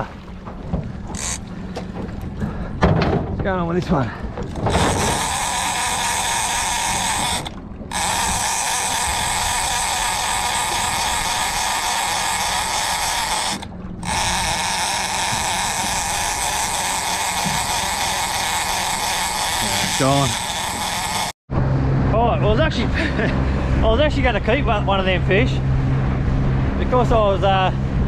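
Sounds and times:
fishing reel drag screaming: 0:01.1 - 0:01.4, 0:04.6 - 0:21.4.

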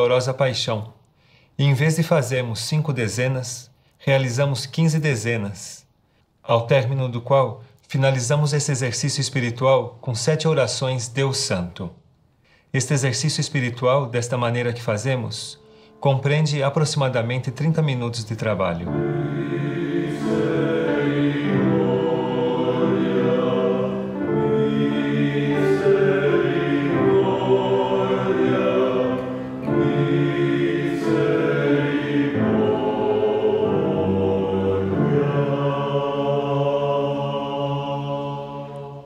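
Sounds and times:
choir chanting: 0:18.9 - 0:39.0.

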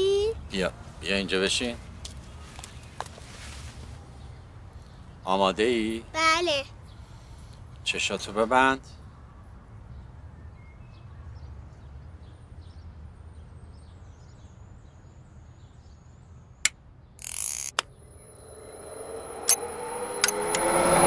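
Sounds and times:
sharp clicks: 0:16.6 - 0:17.9, 0:19.4 - 0:21.0
rewind sound effect: 0:17.2 - 0:21.0.

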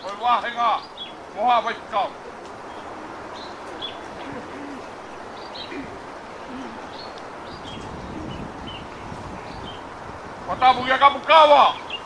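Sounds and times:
dove cooing: 0:02.1 - 0:09.9.

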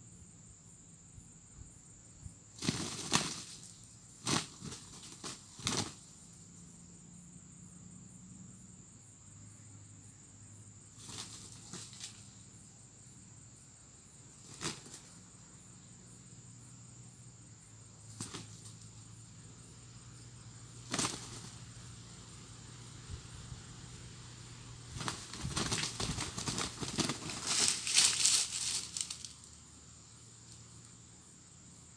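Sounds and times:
rooster wings flapping: 0:02.6 - 0:06.1, 0:11.0 - 0:12.2, 0:14.4 - 0:15.1, 0:18.1 - 0:18.9, 0:20.8 - 0:21.7, 0:24.9 - 0:29.4.

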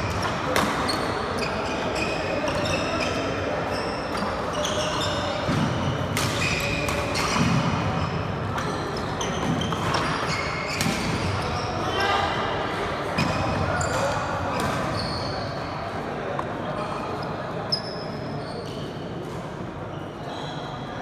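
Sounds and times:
racket hitting shuttlecock: 0:00.1 - 0:00.9, 0:05.4 - 0:07.9, 0:10.7 - 0:11.2
sneakers squeaking on wooden floor: 0:00.8 - 0:11.8, 0:13.2 - 0:15.6.

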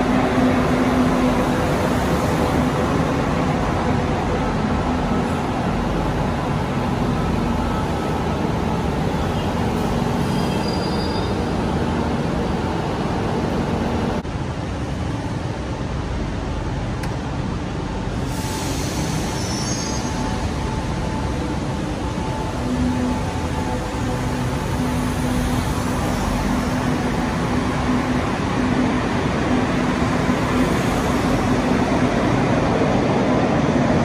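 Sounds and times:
train wheels rumbling on rail: 0:00.0 - 0:34.0
faint high squeals: 0:10.2 - 0:11.4.

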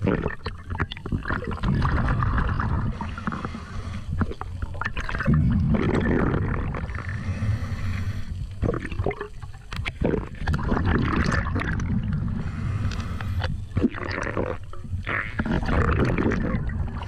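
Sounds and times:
water rushing and gurgling: 0:00.0 - 0:17.0
steady low rumble: 0:01.8 - 0:15.1.

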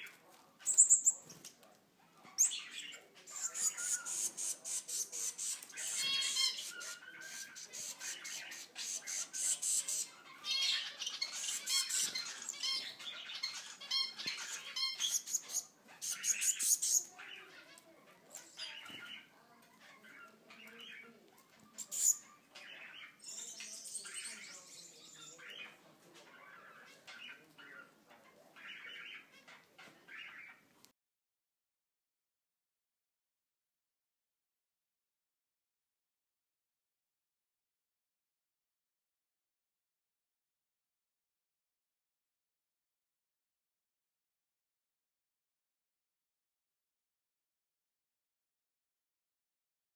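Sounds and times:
chicks rasping begging calls: 0:02.4 - 0:17.6.

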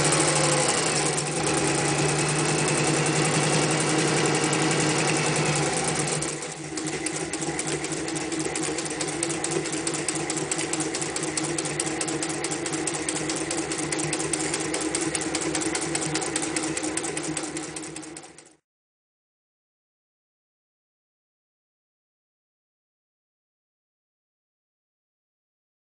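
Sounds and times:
sewing machine running: 0:00.0 - 0:18.6.

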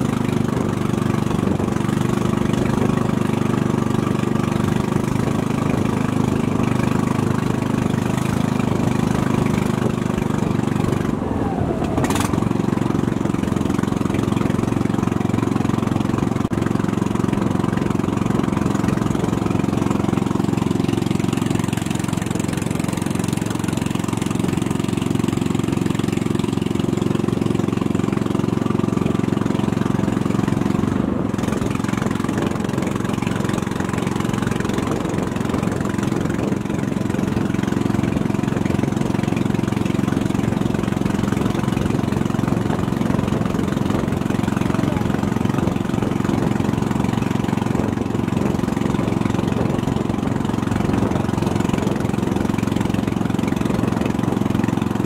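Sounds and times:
small boat engine humming: 0:00.0 - 0:55.0.

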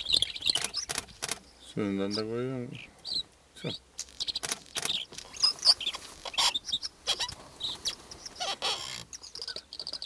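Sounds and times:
bird singing: 0:00.0 - 0:10.0.

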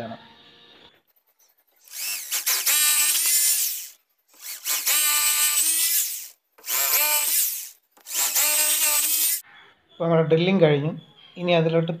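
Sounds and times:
electric drill boring into masonry: 0:01.8 - 0:09.4.

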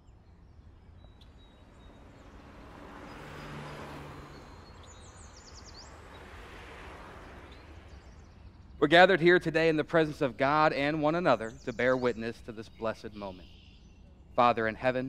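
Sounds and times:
bird chirps: 0:00.0 - 0:06.5, 0:07.2 - 0:15.0
vehicle passing: 0:00.3 - 0:10.4.

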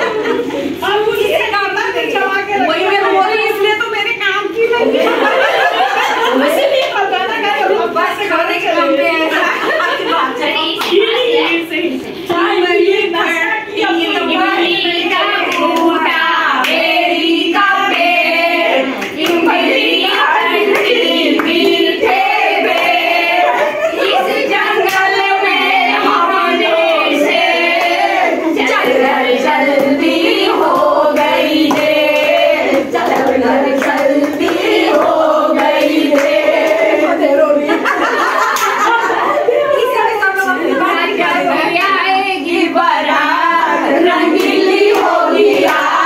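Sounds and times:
women singing together: 0:00.0 - 0:46.0
hand-clapping: 0:24.8 - 0:25.2, 0:30.6 - 0:36.9, 0:38.4 - 0:39.0, 0:44.4 - 0:46.0.

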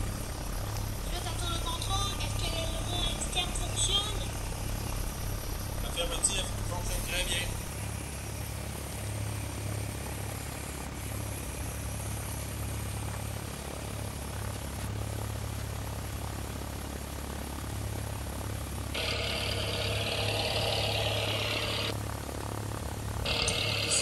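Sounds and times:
small electric motors running: 0:00.0 - 0:24.0
bright hissing: 0:19.0 - 0:21.9, 0:23.3 - 0:24.0.

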